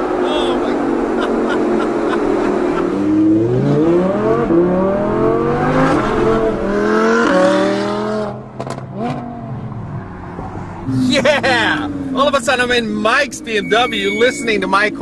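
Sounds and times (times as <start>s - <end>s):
car engine accelerating hard: 0.0s - 13.6s
exhaust pops: 8.6s - 9.3s.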